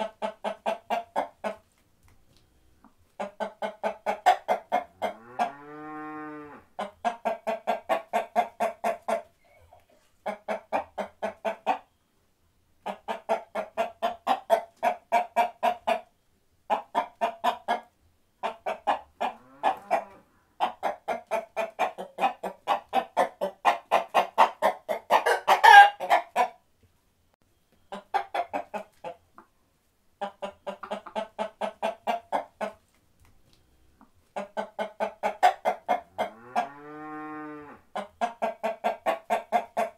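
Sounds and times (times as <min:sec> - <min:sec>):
chickens clucking: 0:00.0 - 0:05.7, 0:06.7 - 0:12.0, 0:12.8 - 0:26.6, 0:27.6 - 0:36.9, 0:37.9 - 0:39.9
chicken squawk: 0:16.7 - 0:26.6.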